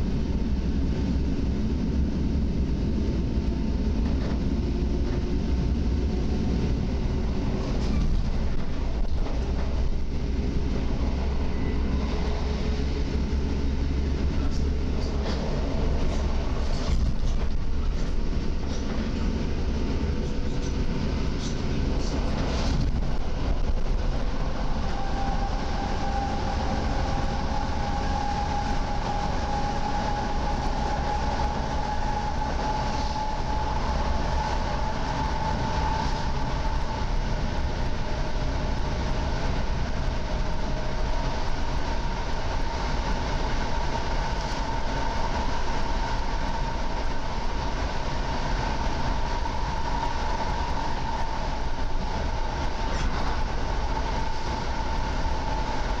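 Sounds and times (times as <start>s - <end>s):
train rolling rumble: 0.0s - 56.0s.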